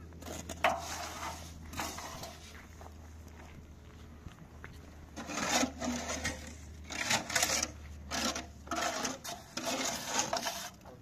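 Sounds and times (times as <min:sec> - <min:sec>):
steel trowel scraping wet concrete: 0:00.2 - 0:02.5, 0:05.2 - 0:11.0.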